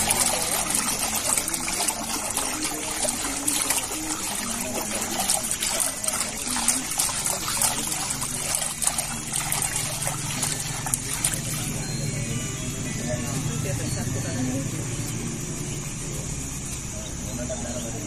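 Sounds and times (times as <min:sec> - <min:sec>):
hands splashing pulp in water: 0:00.0 - 0:11.8.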